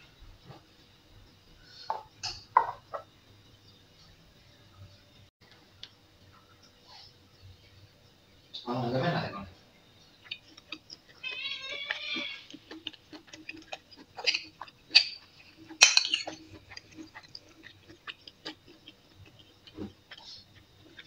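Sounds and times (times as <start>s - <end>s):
cat meowing: 11.2s - 12.5s
spoon scraping ceramic plate: 15.8s - 16.4s.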